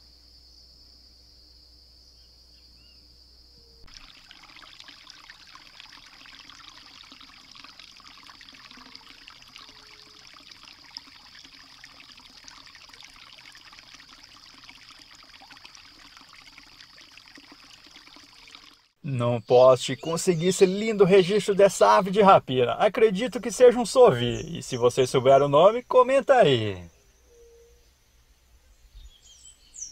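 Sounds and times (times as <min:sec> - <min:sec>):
creek trickling over stones: 0:03.9 - 0:26.8.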